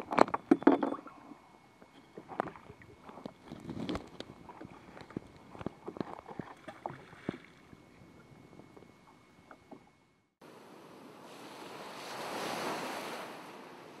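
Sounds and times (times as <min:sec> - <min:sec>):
open sea ambience: 0:00.0 - 0:14.0
smooth whoosh of noise: 0:10.4 - 0:14.0.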